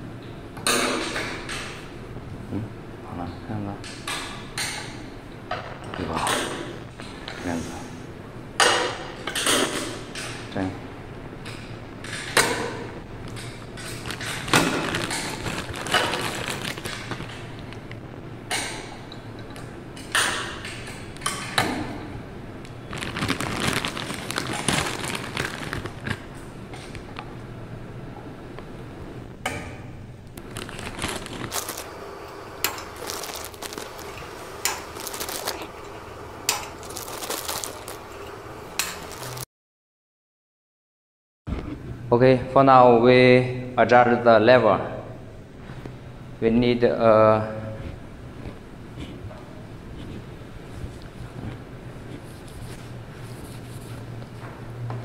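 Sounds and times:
plastic film crinkling: 13.8 - 18.0, 22.7 - 27.2, 30.4 - 31.9, 32.7 - 35.8, 36.5 - 39.5.

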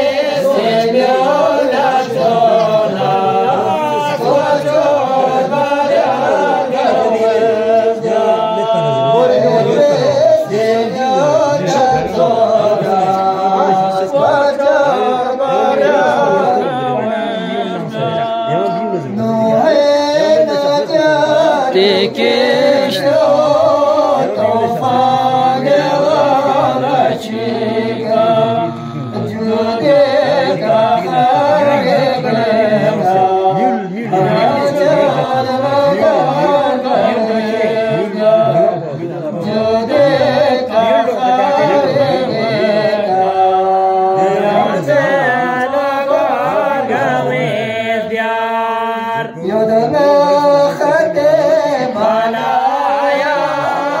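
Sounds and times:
men singing unaccompanied: 0.0 - 54.0.

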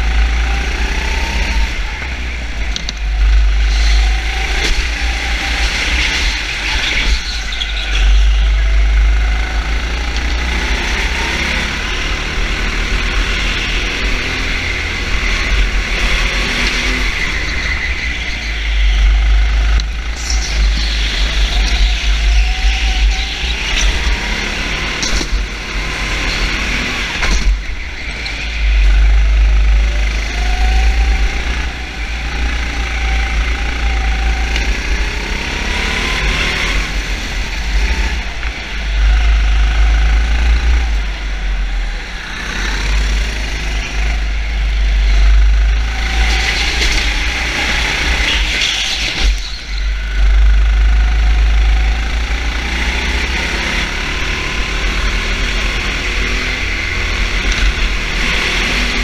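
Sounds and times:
heavy low rumble: 0.0 - 25.8, 36.9 - 53.2
racing engine revving: 0.0 - 59.0.

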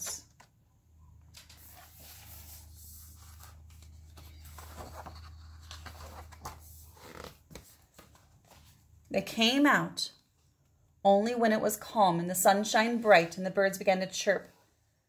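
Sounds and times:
book pages rustling: 1.3 - 9.0.

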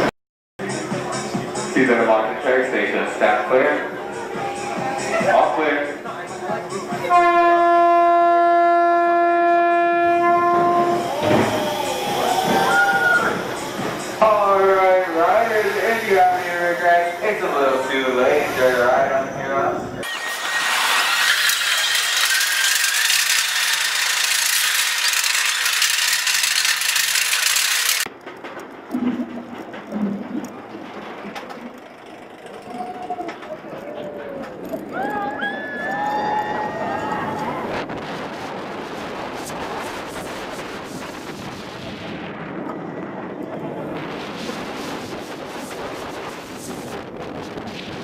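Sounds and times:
roller coaster train rattling: 0.6 - 48.0
wind rushing on microphone: 34.9 - 48.0.

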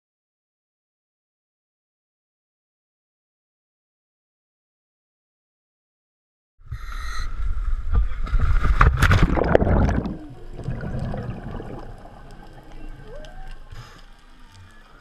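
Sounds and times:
water noise: 7.2 - 15.0
exhaled bubbles gurgling: 9.0 - 13.7.

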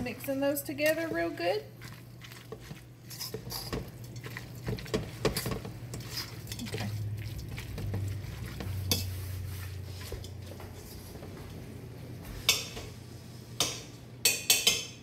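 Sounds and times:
utensil stirring and scraping in pot: 0.0 - 11.4
low steady hum: 0.0 - 15.0.

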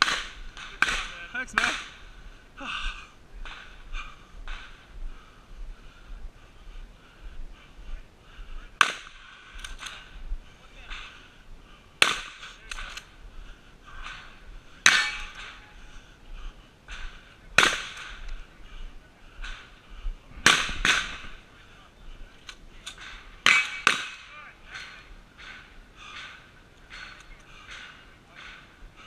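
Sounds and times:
gunshots: 12.0 - 13.1, 20.4 - 21.4
faint distant gunshots: 20.4 - 21.6.

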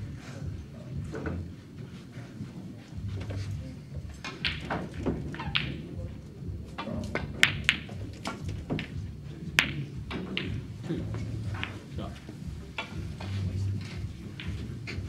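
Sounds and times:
quiet voices: 0.0 - 15.0
snooker balls colliding: 4.2 - 6.1, 6.7 - 15.0.

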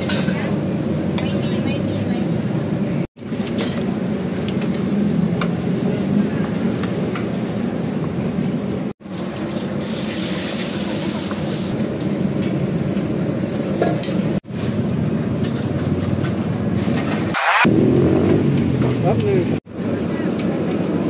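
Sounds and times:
steady background roar: 14.8 - 21.0.

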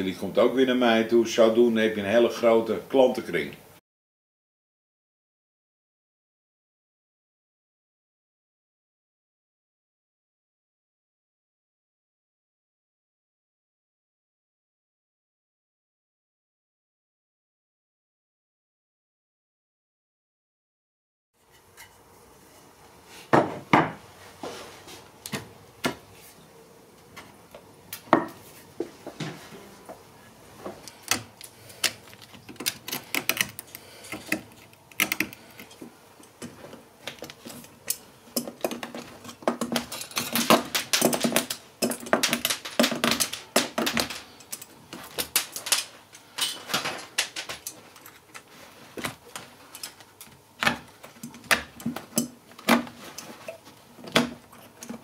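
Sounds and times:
metal tools prying nails from wood: 30.8 - 35.8.

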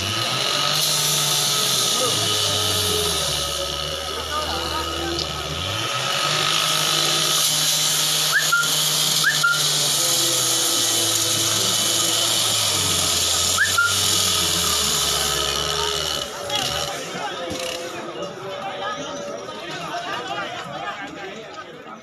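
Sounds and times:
motor humming and hissing: 0.0 - 18.0
rising whistle chirps: 8.3 - 9.8, 13.6 - 14.1.

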